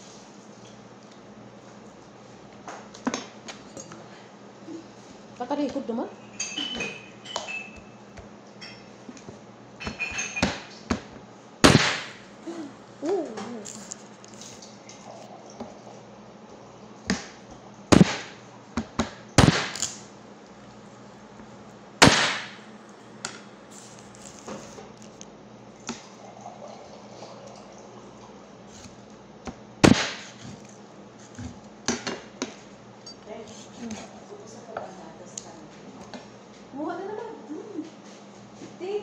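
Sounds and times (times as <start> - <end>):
meat cleaver chopping on wood: 11.6 - 12.1, 17.9 - 18.3, 29.8 - 30.7.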